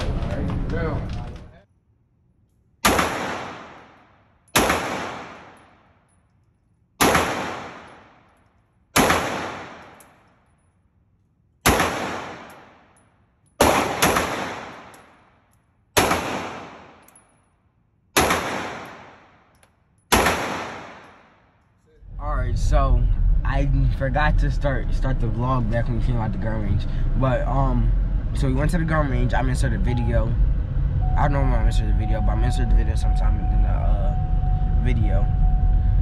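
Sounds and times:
handgun shots echoing: 2.8 - 5.9, 7.0 - 8.4, 9.0 - 10.3, 11.6 - 13.0, 13.6 - 15.3, 16.0 - 17.3, 18.2 - 21.4.

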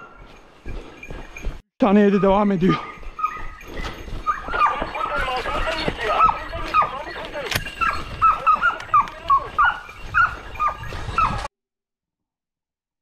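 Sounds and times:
dog yelping: 2.1 - 11.5.

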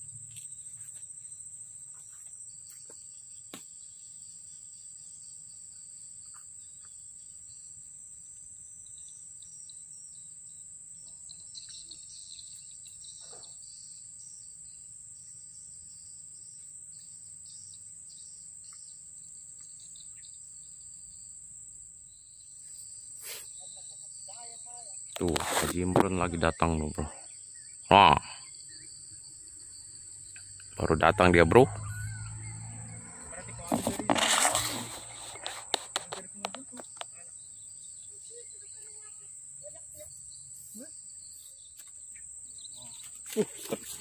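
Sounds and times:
insects droning: 0.0 - 44.0
birds chirping: 22.2 - 44.0.

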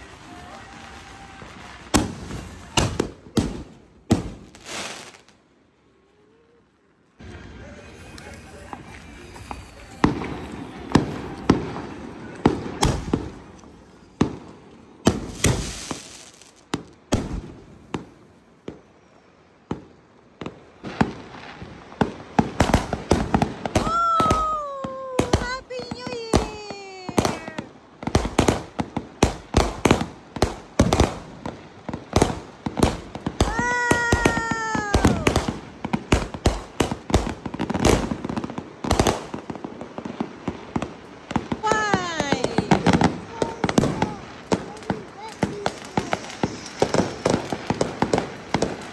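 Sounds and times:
fireworks bangs and pops: 0.0 - 5.4, 7.3 - 18.9, 19.6 - 48.9
fireworks cracks: 0.0 - 5.4, 7.2 - 18.9, 19.6 - 48.9
hissing rush: 41.6 - 48.9.

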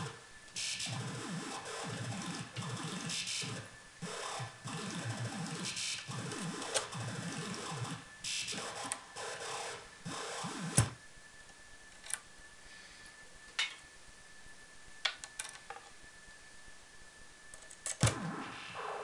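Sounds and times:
noisy electronic synth bursts: 0.0 - 11.0, 18.0 - 19.0.

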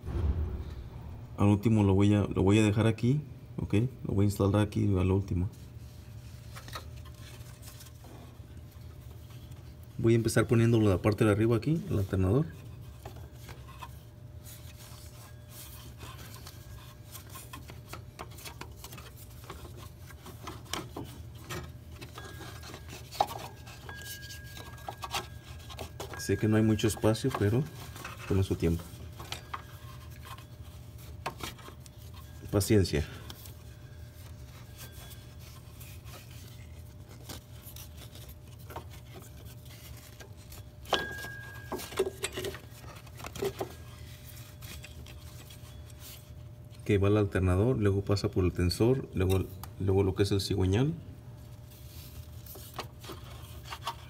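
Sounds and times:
steady low hum: 0.0 - 4.2, 5.4 - 54.0
rubber belt rubbing and scraping: 33.4 - 41.4.

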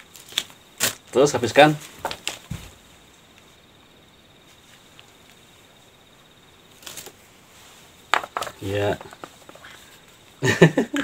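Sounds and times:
chess piece set down: 8.1 - 9.6.

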